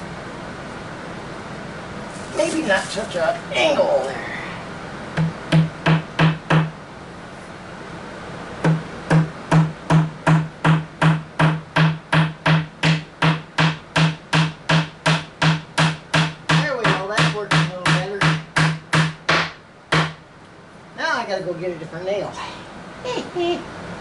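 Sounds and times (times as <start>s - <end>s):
hammer tapping nails into wood: 5.2s - 6.7s, 8.7s - 20.2s.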